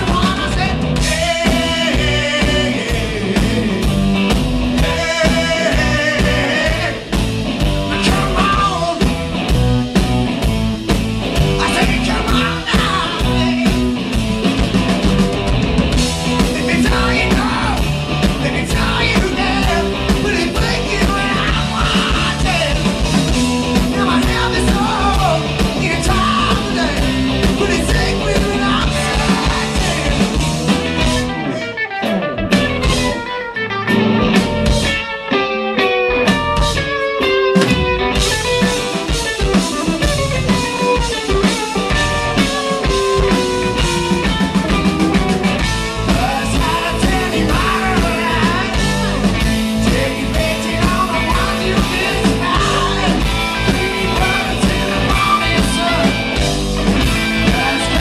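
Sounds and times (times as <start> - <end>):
person singing: 0.0 - 3.9, 4.8 - 7.1, 7.9 - 9.2, 11.6 - 13.9, 16.4 - 22.9, 23.9 - 30.4, 38.6 - 56.5, 57.3 - 58.0
blues-rock band playing: 0.0 - 58.0.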